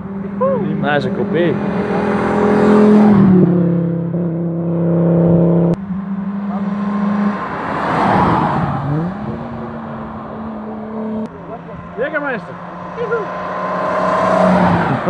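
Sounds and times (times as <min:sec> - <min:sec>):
car engine accelerating: 0:00.0 - 0:15.0
car passing by: 0:06.4 - 0:15.0.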